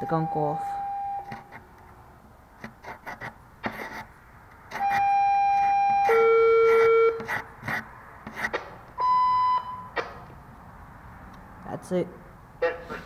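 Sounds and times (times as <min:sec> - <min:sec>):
putty knife scraping wood: 0:02.6 - 0:05.1, 0:06.0 - 0:08.7.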